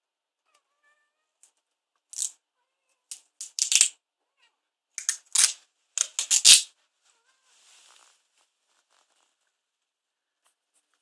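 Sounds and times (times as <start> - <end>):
sticky tape crackling: 3.2 - 3.9, 5.0 - 6.7.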